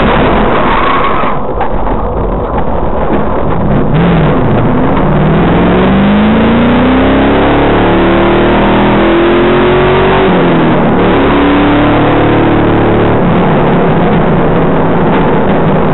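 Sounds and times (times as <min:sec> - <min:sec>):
wind and road noise: 0:00.0 - 0:15.9
race car engine accelerating: 0:03.3 - 0:15.9.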